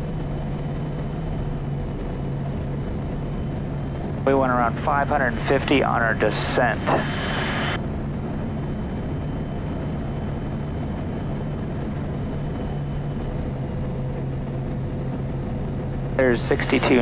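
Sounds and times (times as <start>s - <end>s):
turboprop engine droning: 0.0s - 17.0s
hiss of air: 6.9s - 7.8s.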